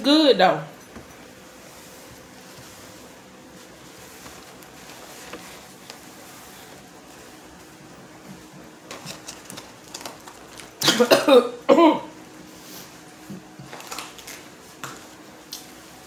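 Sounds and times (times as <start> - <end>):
paper wrapper rustling: 8.8 - 10.8, 13.7 - 14.5
woman coughing: 10.8 - 12.2.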